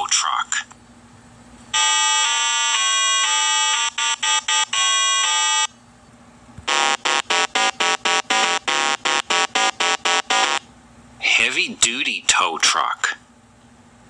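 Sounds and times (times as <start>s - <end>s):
buzzy electronic held notes: 6.7s - 10.6s.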